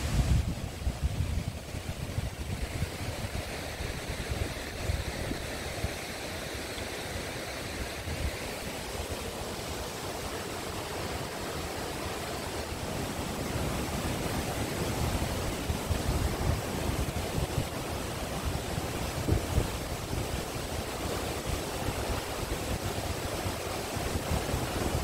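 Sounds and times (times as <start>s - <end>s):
wind buffeting microphone: 0.0s - 6.0s, 13.9s - 25.0s
waterfall rushing: 0.0s - 25.0s.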